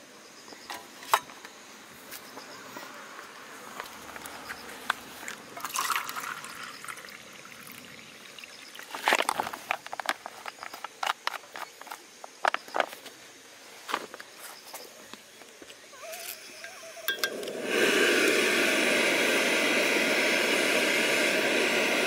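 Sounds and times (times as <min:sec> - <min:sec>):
water trickling and bubbling: 0:05.5 - 0:09.5.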